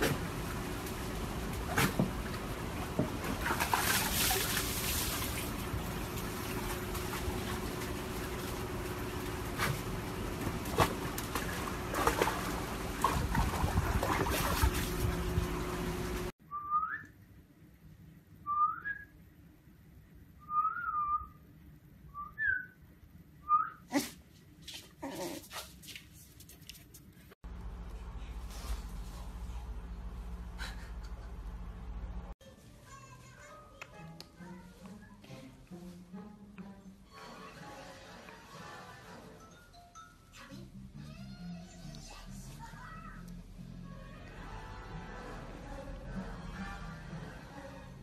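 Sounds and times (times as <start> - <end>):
water spilling: 0.9 - 10.7
dog splashing in water: 1.6 - 15.2.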